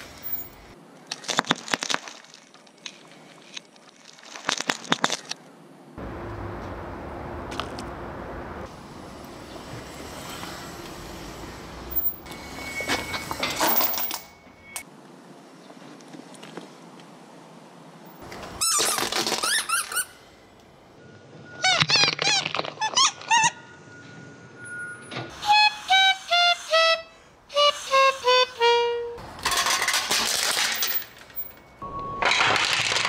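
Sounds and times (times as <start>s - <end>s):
toys crunching under tyre: 0.0s - 5.5s, 18.2s - 20.1s, 29.2s - 33.0s
high toy squeaks: 18.6s - 20.2s, 21.6s - 23.7s, 25.3s - 29.1s.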